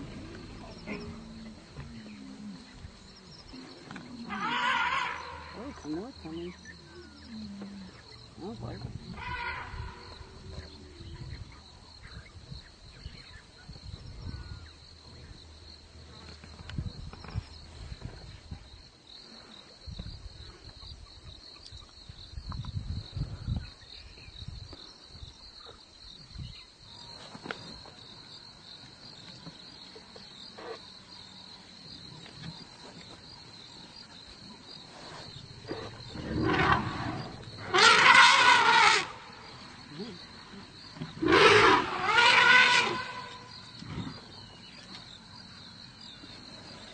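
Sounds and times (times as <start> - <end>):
high drone of insects: 0.0 - 46.9
elephants trumpeting loudly: 4.3 - 5.6, 9.1 - 10.1, 35.8 - 39.3, 41.2 - 43.5.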